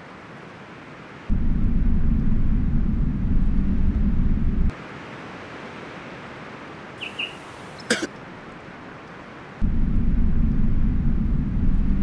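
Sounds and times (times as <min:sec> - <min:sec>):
low rumble: 0:01.3 - 0:04.7, 0:09.6 - 0:12.0.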